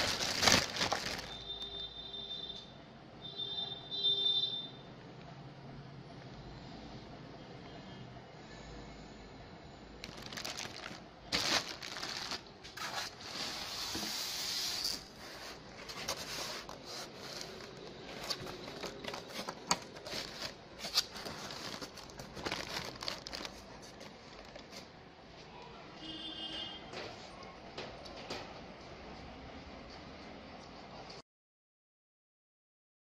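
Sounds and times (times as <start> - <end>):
plastic wrapping crinkling: 0.0 - 1.8, 10.0 - 24.9.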